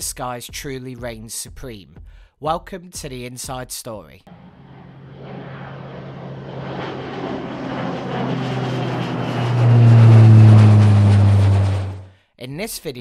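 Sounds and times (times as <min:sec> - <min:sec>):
aircraft engine drone: 0:04.3 - 0:12.1.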